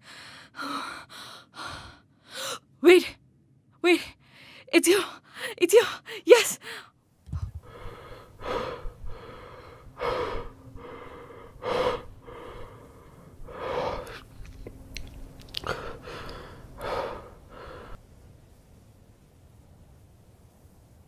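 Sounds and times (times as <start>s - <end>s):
person breathing heavily: 6.6s - 14.4s, 15.6s - 18.0s.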